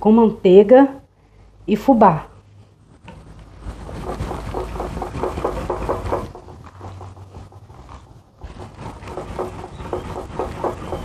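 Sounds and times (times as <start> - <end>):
wire whisk beating batter in bowl: 3.6 - 11.0.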